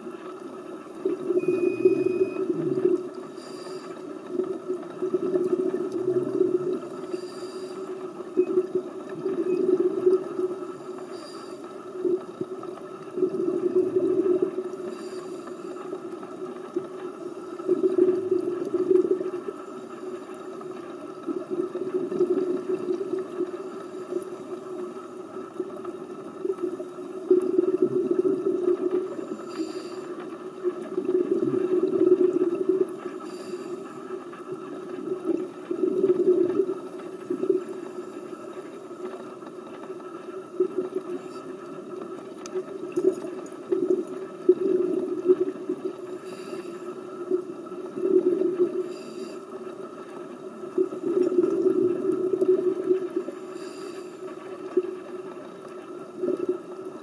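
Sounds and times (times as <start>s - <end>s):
bubbles gurgling underwater: 0.0s - 3.4s, 4.0s - 7.2s, 8.2s - 10.8s, 11.9s - 15.0s, 16.2s - 19.6s, 21.0s - 23.7s, 25.4s - 29.4s, 30.4s - 33.2s, 34.3s - 37.9s, 39.6s - 46.2s, 47.0s - 49.0s, 50.0s - 53.4s
regulator inhale hiss: 3.3s - 4.0s, 7.0s - 8.0s, 10.7s - 11.7s, 14.8s - 16.0s, 29.1s - 30.2s, 33.1s - 34.1s, 46.0s - 47.1s, 48.8s - 49.6s, 53.2s - 54.5s.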